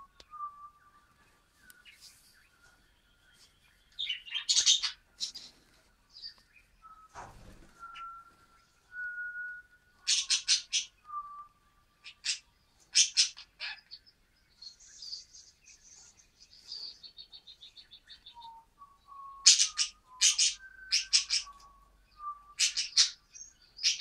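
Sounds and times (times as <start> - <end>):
budgerigars chirping: 4.0 - 5.5, 10.1 - 11.0, 12.0 - 14.1, 19.4 - 21.7, 22.6 - 24.0
budgerigar soft chatter: 12.0 - 14.0
budgerigar thin whistles: 19.4 - 21.7.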